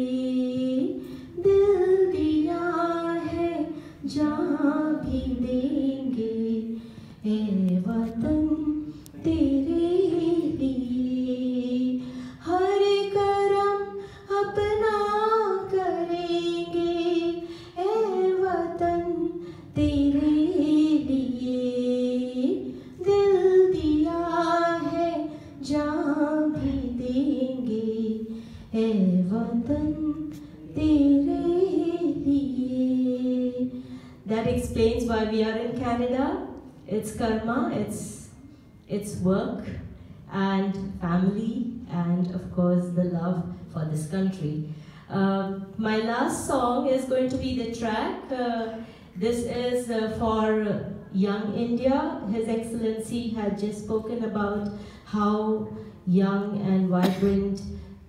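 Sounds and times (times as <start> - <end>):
woman singing: 0.0 - 38.2.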